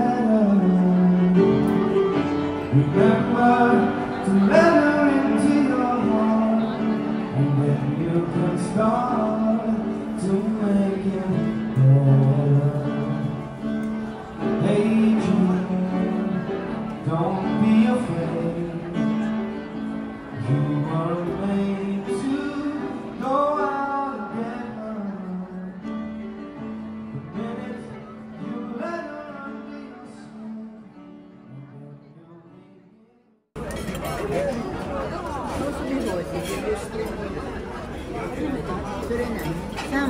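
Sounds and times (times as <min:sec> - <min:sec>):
person singing: 0:00.0 - 0:13.5
piano music: 0:00.0 - 0:40.0.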